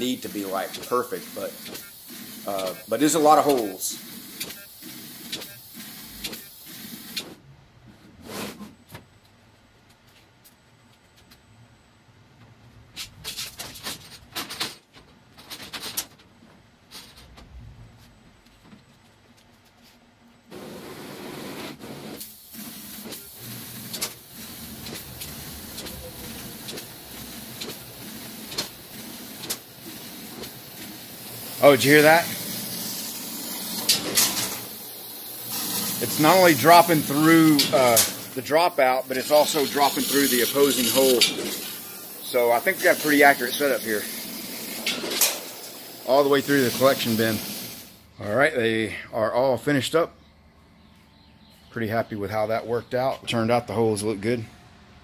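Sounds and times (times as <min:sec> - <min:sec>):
laser cutter hissing: 0:00.0 - 0:07.4, 0:20.6 - 0:48.0
sharp machine click: 0:33.5 - 0:34.8, 0:35.5 - 0:38.4, 0:44.8 - 0:45.6.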